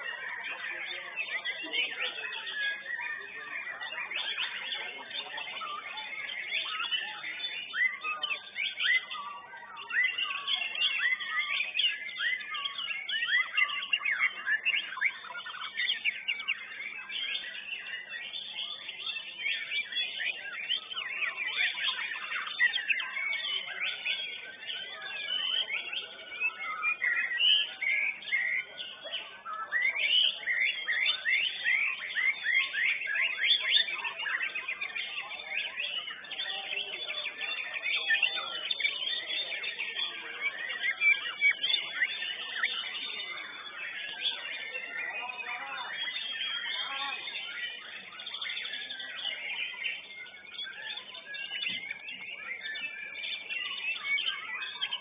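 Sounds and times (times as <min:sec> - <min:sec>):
bird singing rapid whistles: 0:00.0 - 0:55.0.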